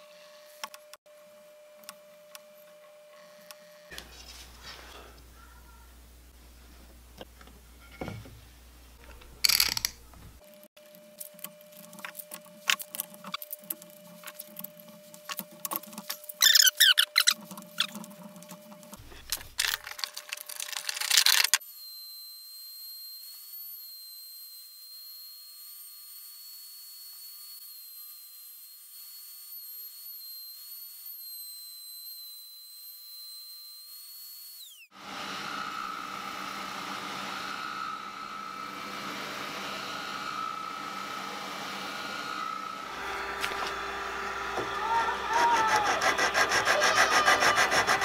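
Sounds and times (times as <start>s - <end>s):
router high whine: 1.8s - 4.1s, 9.5s - 19.1s, 19.8s - 48.0s
spindle sander motor hum: 9.0s - 48.0s
sanding wood block: 45.3s - 48.0s.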